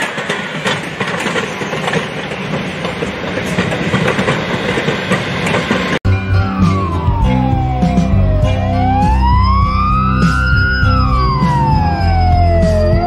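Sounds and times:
train wheels clicking over rail joints: 0.0 - 6.0.

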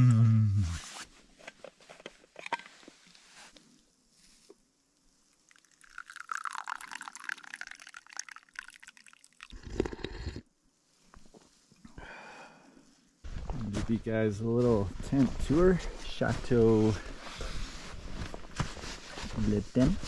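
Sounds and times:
drink pouring into cup: 5.5 - 10.4.

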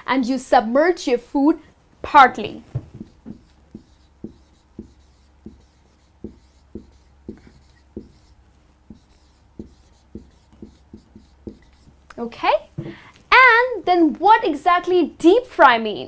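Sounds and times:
faint low hum: 0.0 - 15.2
marker squeaking on whiteboard: 2.6 - 12.1.

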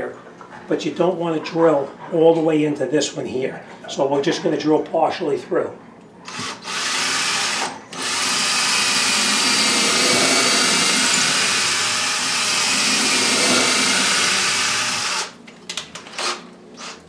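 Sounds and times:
cordless drill boring into wood: 6.3 - 15.4, 16.1 - 17.0.

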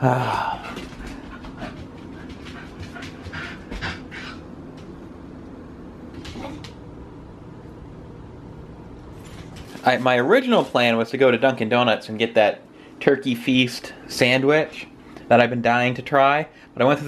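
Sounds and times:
dog panting: 0.6 - 4.5
dogs whining: 6.3 - 6.8.

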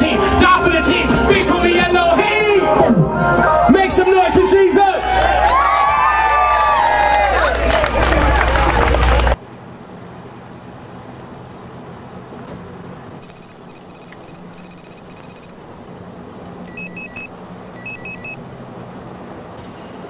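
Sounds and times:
road and engine hum: 0.0 - 20.0
cell phone electronic trilling ring: 13.2 - 15.6, 16.7 - 18.4
short beeps: 13.2 - 15.6, 16.7 - 18.4.

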